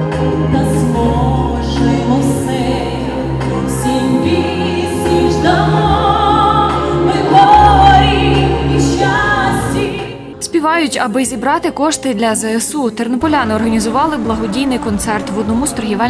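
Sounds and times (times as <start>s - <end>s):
amplified musical accompaniment: 0.0s - 16.0s
woman singing into a microphone: 0.5s - 10.9s.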